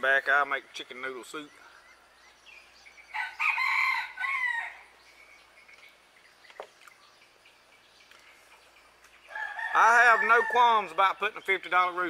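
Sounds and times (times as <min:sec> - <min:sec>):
rooster crowing: 0:03.1 - 0:04.9, 0:09.3 - 0:10.8.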